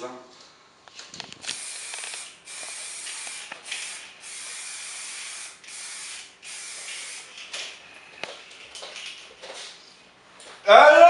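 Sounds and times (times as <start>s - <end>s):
spray paint can hissing: 1.4s - 7.8s.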